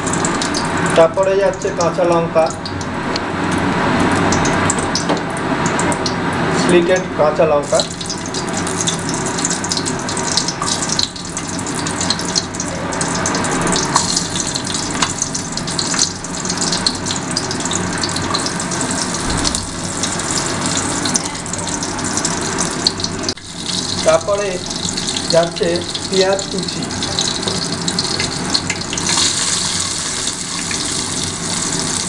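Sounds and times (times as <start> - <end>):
spices sizzling in hot oil: 0.0 - 3.1, 7.6 - 32.0.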